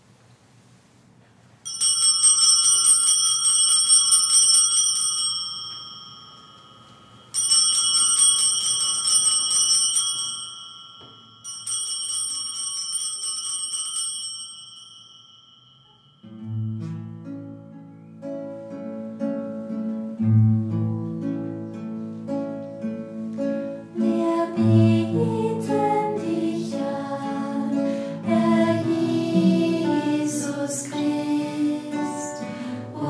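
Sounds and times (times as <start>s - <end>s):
altar bells jingling: 1.7s - 16.4s.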